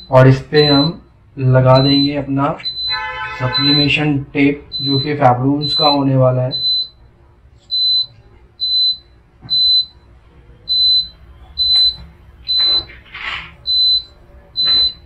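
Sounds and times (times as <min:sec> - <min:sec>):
short high-pitched beeps: 0:01.8 - 0:04.0.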